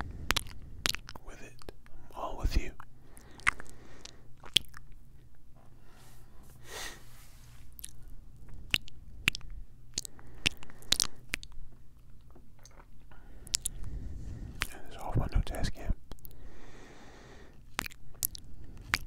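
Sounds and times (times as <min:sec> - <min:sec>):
wet lip smacks: 0:00.2 - 0:01.8, 0:02.8 - 0:05.0, 0:07.7 - 0:13.9, 0:14.5 - 0:14.8, 0:15.5 - 0:16.4, 0:17.6 - 0:19.0
breathy sound: 0:16.3 - 0:17.6.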